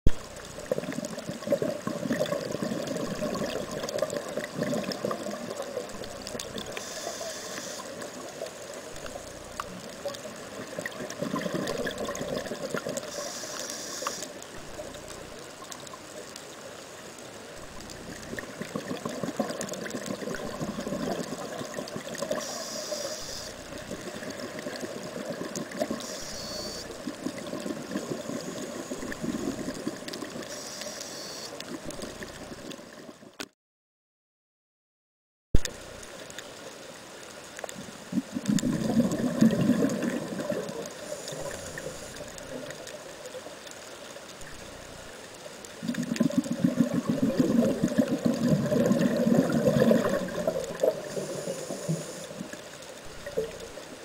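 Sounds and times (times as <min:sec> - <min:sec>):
bubbly gurgling of exhaled air: 0:00.1 - 0:13.4, 0:17.6 - 0:30.6, 0:37.8 - 0:43.2, 0:45.8 - 0:54.0
regulator inhalation hiss: 0:06.7 - 0:09.0, 0:13.0 - 0:14.4, 0:22.3 - 0:23.6, 0:25.9 - 0:27.0, 0:30.5 - 0:31.6, 0:40.9 - 0:42.3, 0:50.8 - 0:52.6.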